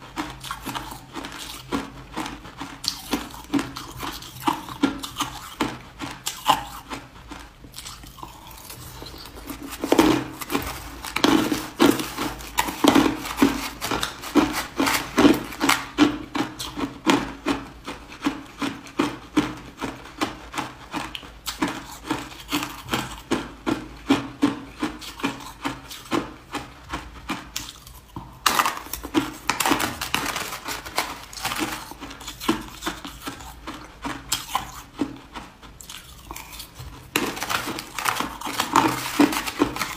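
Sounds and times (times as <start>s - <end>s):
ice crunched between teeth: 0.2s - 17.3s, 27.3s - 35.2s, 35.8s - 39.9s.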